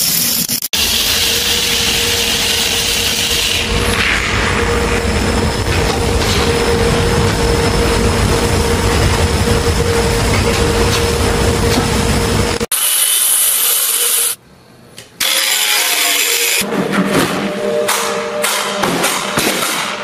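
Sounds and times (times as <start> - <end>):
rasping workshop machine: 0.8 - 14.4, 15.2 - 16.7.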